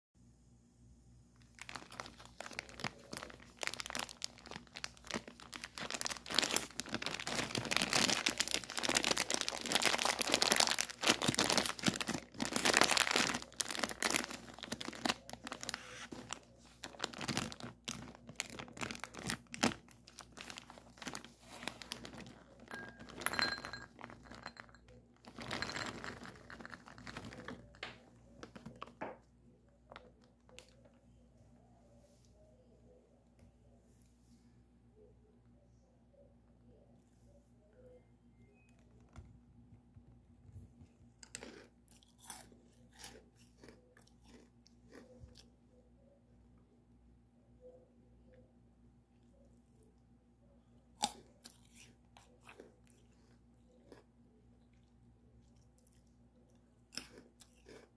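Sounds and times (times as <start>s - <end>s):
plastic pouch crinkling and tearing: 1.4s - 23.4s, 25.2s - 28.9s.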